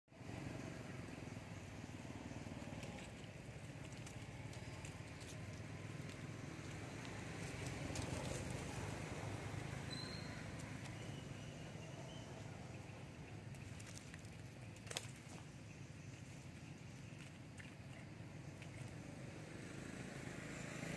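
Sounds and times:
rustling of dry leaves: 0:00.2 - 0:20.9
faint high chirp: 0:09.8 - 0:14.2.

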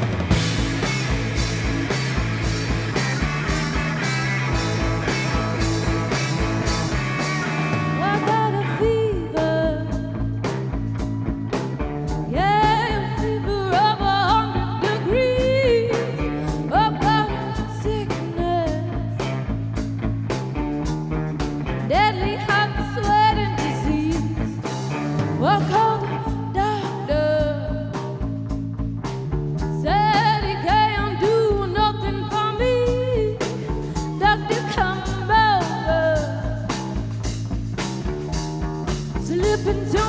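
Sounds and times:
rock band playing: 0:00.0 - 0:40.0
woman singing lead vocal: 0:07.8 - 0:10.4, 0:12.2 - 0:19.4, 0:21.9 - 0:28.2, 0:29.8 - 0:36.9, 0:39.1 - 0:40.0.

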